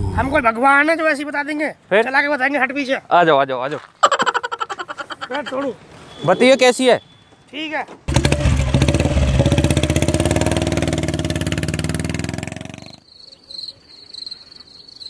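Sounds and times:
motorcycle engine pulling away: 8.1 - 13.0.

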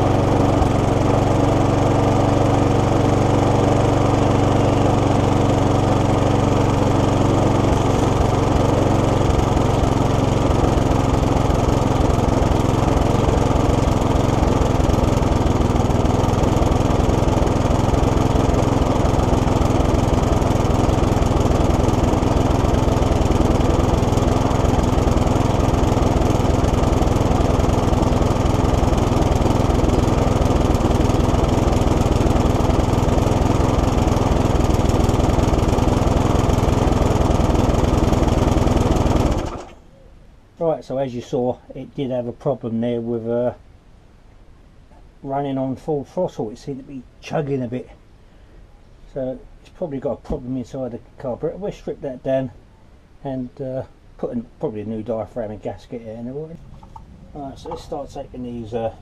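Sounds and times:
lawn mower engine chugging: 0.0 - 39.9, 55.3 - 59.0.

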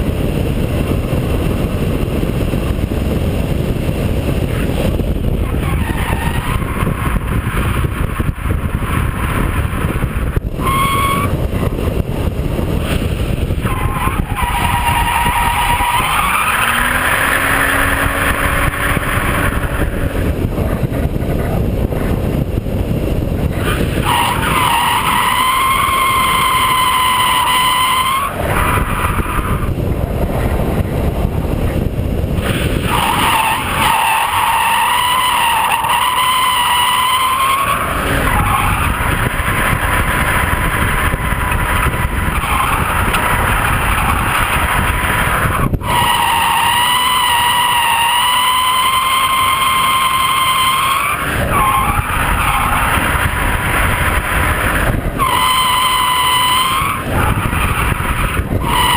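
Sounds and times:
car engine revving: 0.0 - 58.9
tyres squealing: 13.6 - 19.9, 23.6 - 29.6, 32.8 - 58.9.

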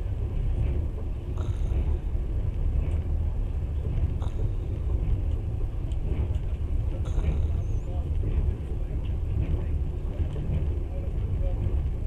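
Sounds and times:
train rumble from inside carriage: 0.0 - 12.0
faint clicks: 3.9 - 8.3.

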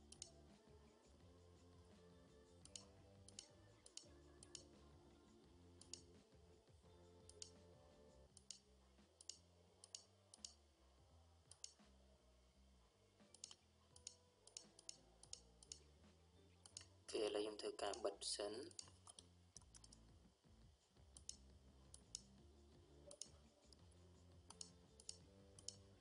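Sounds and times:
faint music: 0.0 - 26.0
computer mouse clicking: 0.1 - 0.4, 2.6 - 4.8, 5.8 - 6.2, 7.3 - 7.6, 8.4 - 8.6, 9.2 - 10.6, 11.5 - 11.9, 13.3 - 15.9, 16.6 - 16.9, 18.7 - 20.0, 21.2 - 22.3, 23.1 - 23.8, 24.5 - 25.9.

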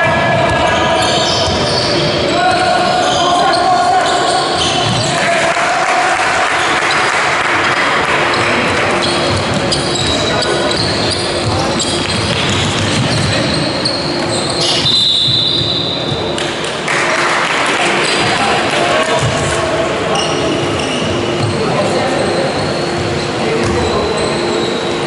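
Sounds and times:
players' voices: 0.0 - 25.0
shoes squeaking: 0.4 - 5.2, 8.3 - 16.4, 20.1 - 25.0
high squeak: 0.5 - 5.2, 9.0 - 16.1, 20.1 - 25.0.

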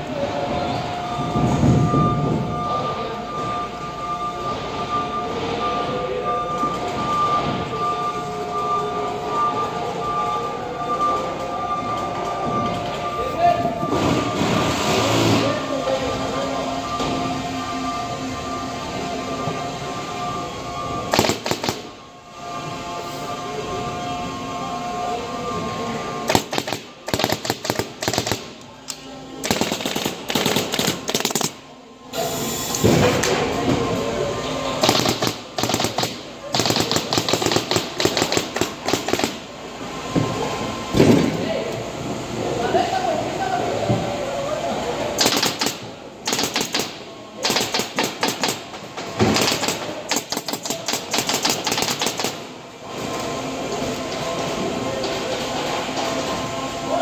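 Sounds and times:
steady noisy sound: 0.0 - 57.0
rapid sharp mechanical clicks: 21.1 - 21.9, 26.3 - 28.6, 29.4 - 31.6, 34.8 - 39.4, 45.2 - 48.7, 49.3 - 52.4
tool clicking rapidly: 45.2 - 48.6.

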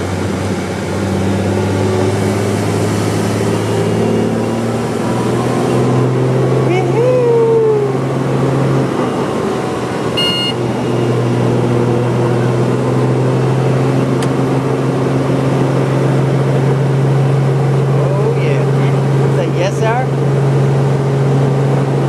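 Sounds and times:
brief high tone: 10.1 - 11.4.

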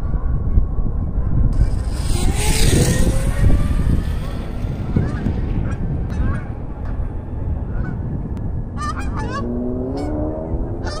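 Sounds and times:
steady low rumble: 0.7 - 9.4
low hum rising in pitch: 1.5 - 11.0.

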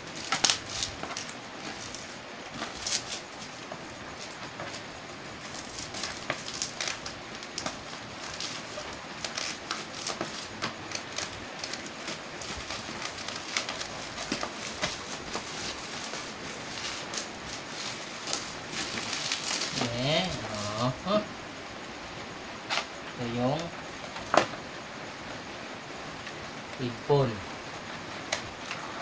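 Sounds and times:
bubble wrap crinkling and crackling: 0.0 - 21.4.

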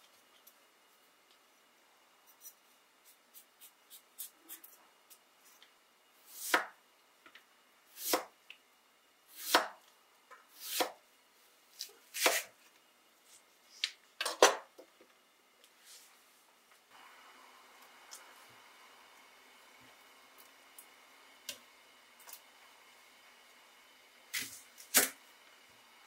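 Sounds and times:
knife slicing radish: 6.3 - 6.8, 7.9 - 8.3, 9.3 - 9.8, 10.5 - 11.0, 11.8 - 12.6.

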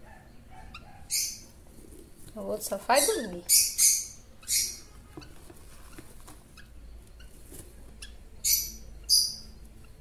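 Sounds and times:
bird chicks squeaking: 0.1 - 1.6, 2.4 - 10.0.

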